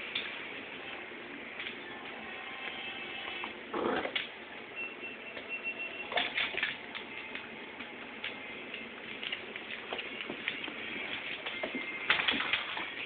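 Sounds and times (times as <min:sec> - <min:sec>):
dogs scuffling on wooden floor: 0:06.2 - 0:13.0.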